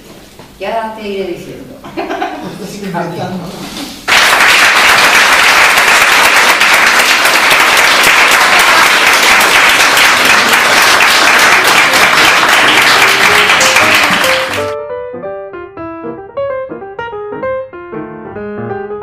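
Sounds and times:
audience applauding: 4.1 - 14.8
piano music: 7.1 - 19.0.

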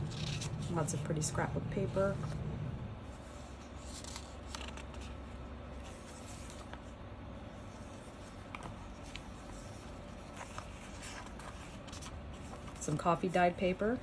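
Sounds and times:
paper pages rustling: 0.0 - 0.9, 3.2 - 7.0, 7.6 - 13.1.

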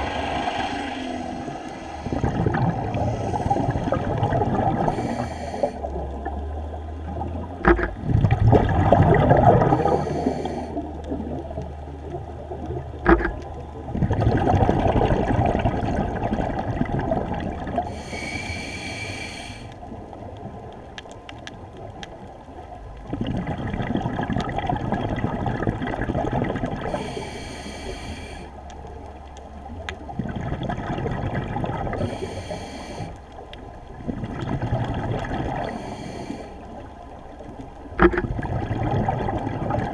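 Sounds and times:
regulator exhaust bubbles gurgling: 0.0 - 18.2, 22.8 - 27.6, 29.6 - 35.9, 37.0 - 39.9
hissing regulator breaths: 4.9 - 5.8, 9.8 - 10.8, 17.9 - 19.8, 26.9 - 28.6, 32.0 - 33.2, 35.6 - 36.7.

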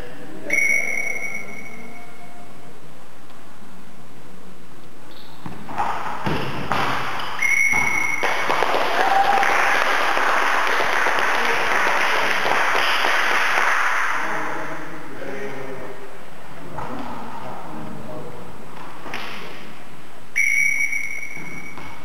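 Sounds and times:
dense steady noise: 0.0 - 22.0
referee whistle blast: 0.5 - 2.2, 7.4 - 8.3, 20.4 - 21.8
ball thuds: 5.4 - 8.2.

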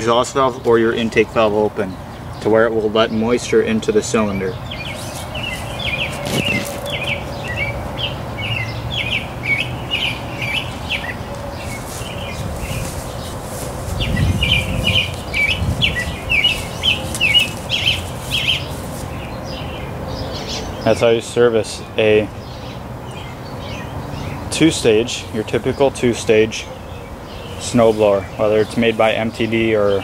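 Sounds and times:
small bird chirping: 4.6 - 20.8.

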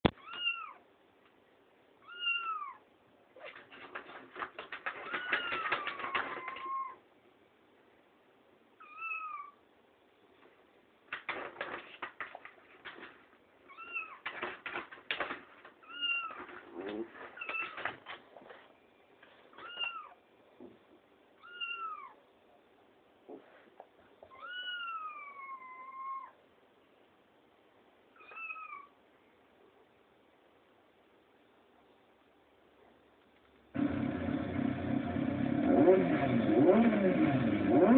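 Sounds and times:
rapid clicking: 3.6 - 6.6
meow-like calls: 21.4 - 22.2, 24.3 - 26.4, 28.2 - 29.0.

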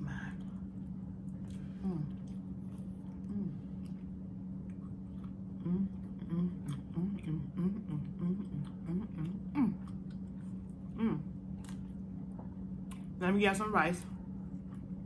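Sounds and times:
steady low hum: 0.0 - 15.0
woman humming: 1.7 - 2.4, 3.2 - 3.8, 5.6 - 9.9, 10.9 - 11.4.

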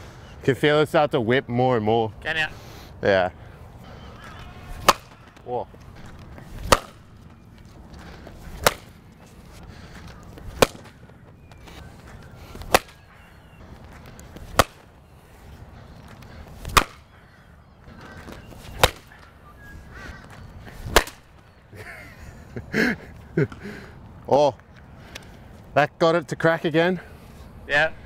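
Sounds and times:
cricket bat hitting ball: 4.8 - 5.4, 6.6 - 7.1, 8.6 - 9.0, 10.5 - 11.0, 12.6 - 13.1, 14.5 - 14.8, 16.7 - 17.0, 18.7 - 19.1, 20.9 - 21.2.

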